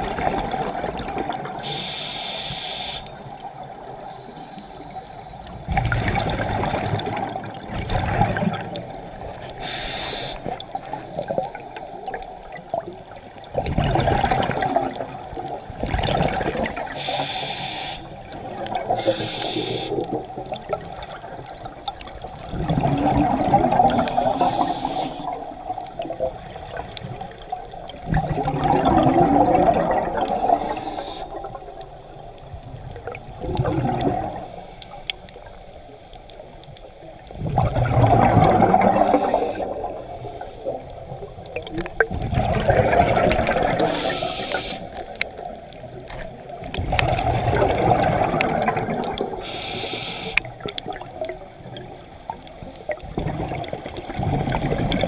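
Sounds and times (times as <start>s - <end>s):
exhaled bubbles underwater: 0.0s - 2.1s, 2.8s - 17.5s, 18.1s - 55.0s
regulator hiss: 1.6s - 3.2s, 9.6s - 11.3s, 16.9s - 18.2s, 18.9s - 20.0s, 24.3s - 25.4s, 30.3s - 31.4s, 38.9s - 40.6s, 43.8s - 45.0s, 49.4s - 50.5s.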